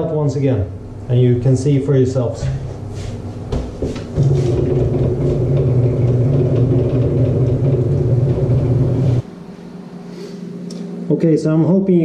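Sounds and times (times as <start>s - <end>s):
electric motor humming: 3.4s - 9.3s.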